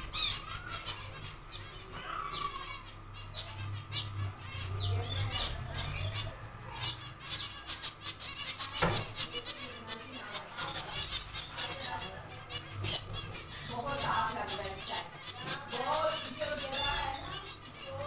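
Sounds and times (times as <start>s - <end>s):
finches chirping: 0.0s - 18.0s.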